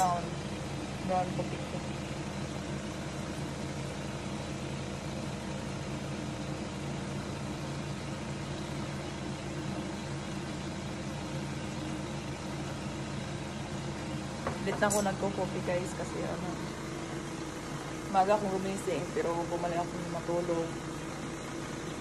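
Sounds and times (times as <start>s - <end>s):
low machine hum: 0.0s - 22.0s.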